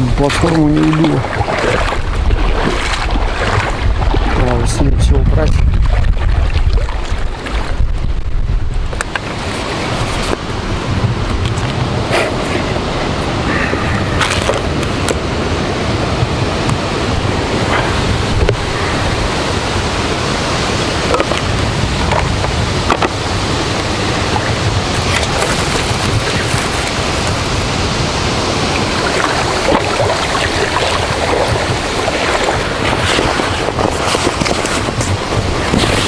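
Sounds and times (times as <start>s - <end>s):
lake water lapping: 0.0s - 36.0s
strong wind on microphone: 0.0s - 36.0s
deep thunder rumble: 1.1s - 9.0s.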